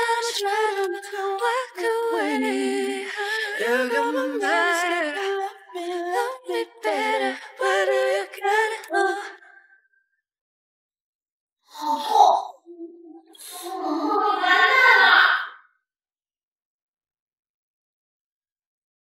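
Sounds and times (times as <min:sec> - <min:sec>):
woman singing slow melody: 0:00.0 - 0:09.4.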